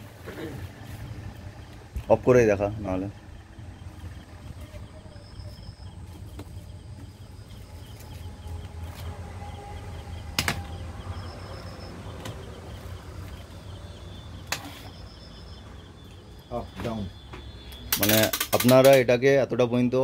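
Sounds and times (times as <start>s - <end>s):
fan humming: 0.0s - 20.0s
fan switch clicks: 17.7s - 19.1s.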